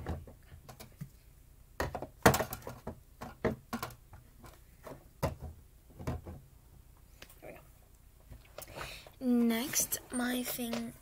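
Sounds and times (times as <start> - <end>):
bottles knocking and clattering: 1.8 - 4.0.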